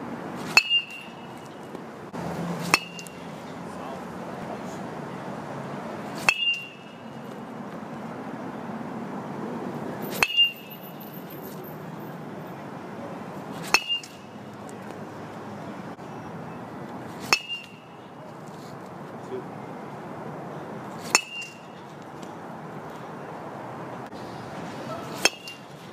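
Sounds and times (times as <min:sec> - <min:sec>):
metal bat pinging baseball: 0:00.5 - 0:01.5, 0:02.6 - 0:03.3, 0:06.2 - 0:07.1, 0:10.0 - 0:11.1, 0:13.6 - 0:14.3, 0:17.2 - 0:17.8, 0:21.1 - 0:21.7, 0:24.9 - 0:25.7.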